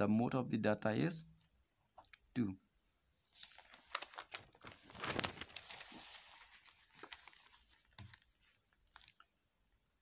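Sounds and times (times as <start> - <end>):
paper page turning: 3.3 - 9.3.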